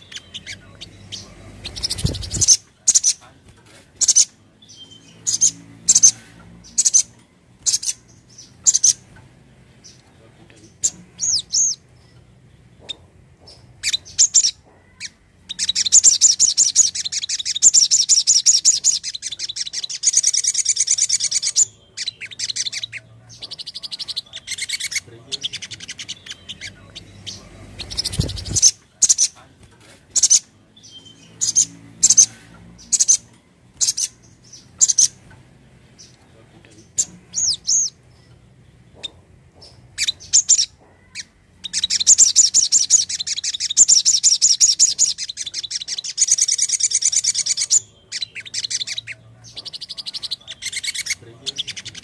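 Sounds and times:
fast bird trill: 0.0 - 3.2, 4.0 - 9.0, 13.8 - 29.4, 40.0 - 52.0
bird chirps: 0.0 - 52.0.

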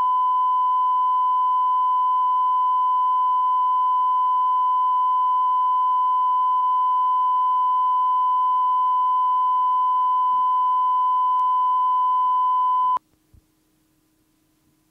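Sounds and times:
pure test tone: 0.0 - 13.0
faint tape hiss: 11.0 - 14.9.

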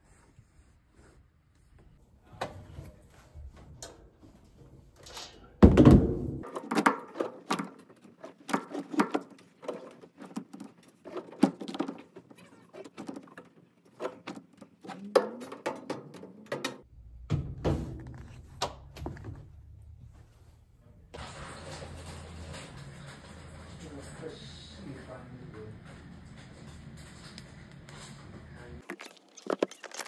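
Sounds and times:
loud thunk: 5.6 - 6.4.

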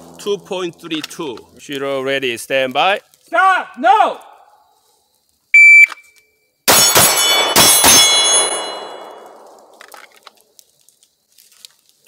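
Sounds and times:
shot timer beep: 5.6 - 6.3
steel targets clanging: 6.7 - 9.7
handgun shots: 6.7 - 9.8.

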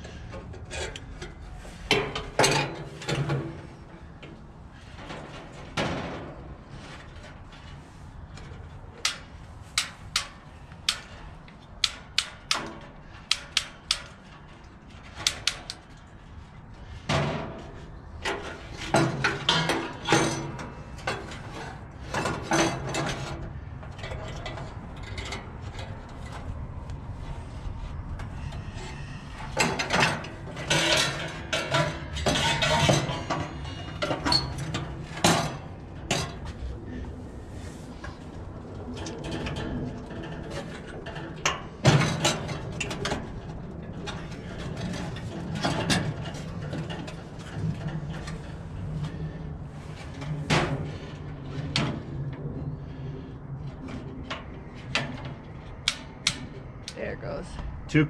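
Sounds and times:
metal knocking and clattering: 0.3 - 7.8, 8.4 - 26.9, 28.2 - 36.6, 38.9 - 49.3.

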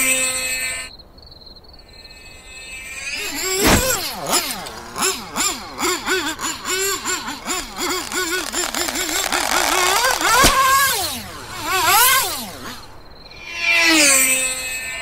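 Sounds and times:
cartoon engine sputtering and revving: 3.0 - 15.0
sharp crack: 3.2 - 13.5.

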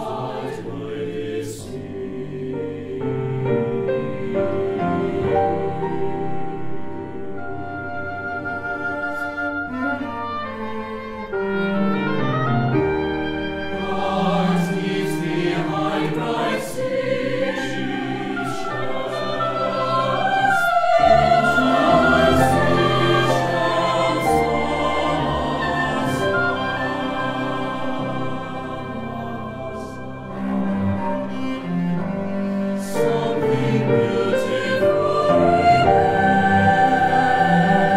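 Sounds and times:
cello: 0.0 - 37.9
mixed choir singing: 0.0 - 37.9
piano: 0.0 - 37.9
oboe: 3.8 - 37.9.

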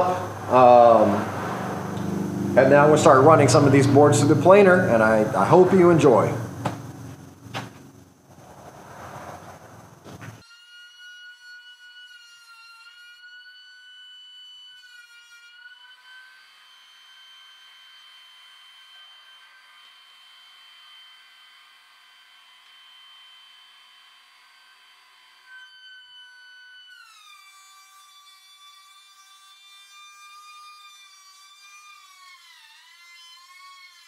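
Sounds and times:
wood cutting rush: 0.0 - 13.2
thickness planer whining: 0.0 - 34.0.

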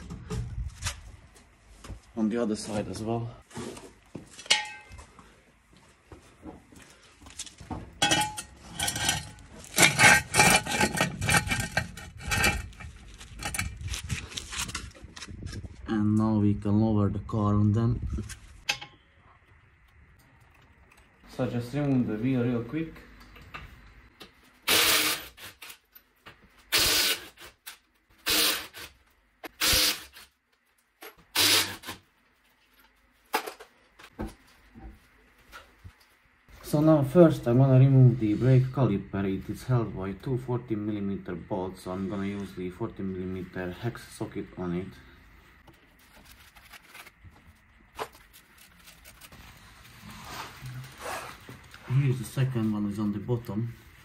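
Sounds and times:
power tool loosening wheel nuts: 24.7 - 25.7, 26.7 - 27.4, 28.2 - 28.9, 29.6 - 30.2, 31.3 - 32.0.

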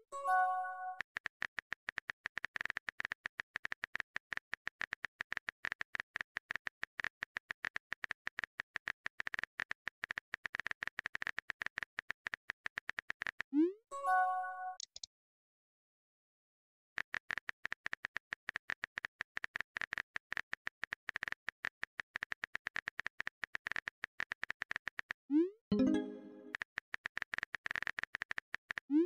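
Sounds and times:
keyboard typing clicks: 14.8 - 15.1.

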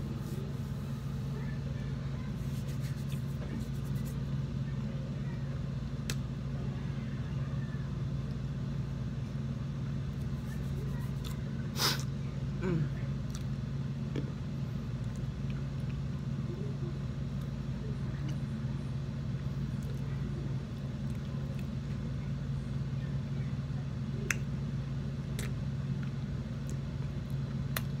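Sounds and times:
steady low hum: 0.0 - 28.0
chewing clicks and smacks: 25.3 - 28.0.

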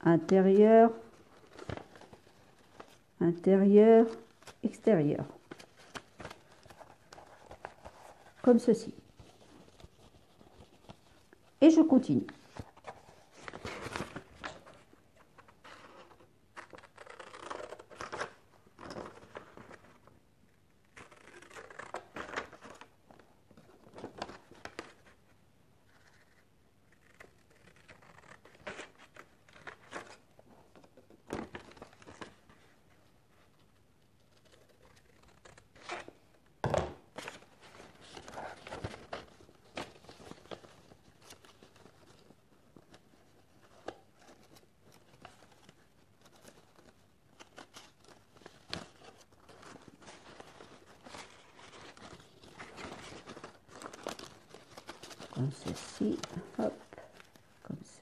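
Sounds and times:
book pages rustling: 0.2 - 3.2, 4.0 - 20.2, 20.8 - 36.4, 37.1 - 57.6
sharp paper crackle: 16.6 - 20.0, 20.9 - 22.9.

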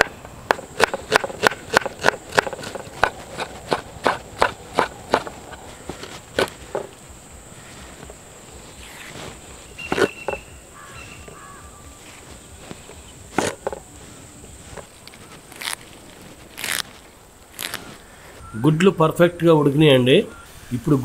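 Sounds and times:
knife chopping on wooden board: 0.0 - 6.9
high insect drone: 0.0 - 21.0.

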